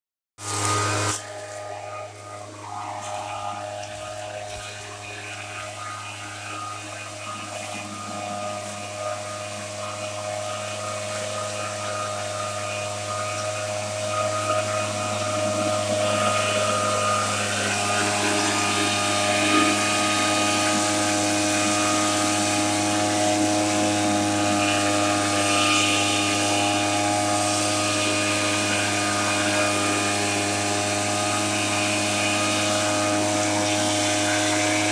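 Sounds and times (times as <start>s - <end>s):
mist-blower engine droning: 0.4s - 34.9s.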